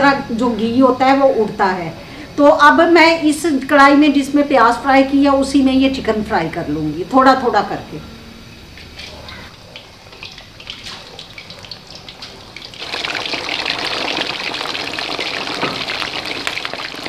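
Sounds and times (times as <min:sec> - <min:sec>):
oil crackling: 0:09.2 - 0:17.0
chicken deep-frying in oil: 0:09.3 - 0:17.0
loud steady sizzle: 0:11.8 - 0:17.0.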